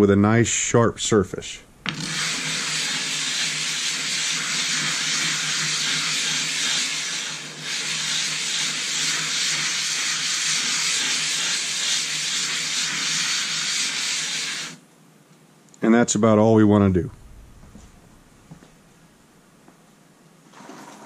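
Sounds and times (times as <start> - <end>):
stone rubbing on wet plate: 1.9 - 14.8.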